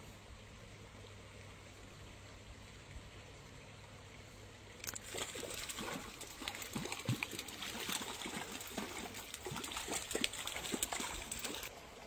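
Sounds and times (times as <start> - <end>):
fish splashing at water surface: 4.8 - 11.7
water dripping: 4.8 - 12.0.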